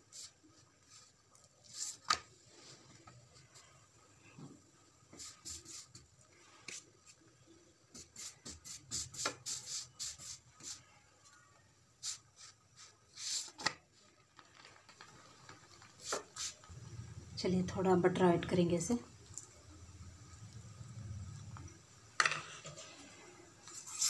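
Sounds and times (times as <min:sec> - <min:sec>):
spatula scraping on griddle: 0:22.2 - 0:24.0.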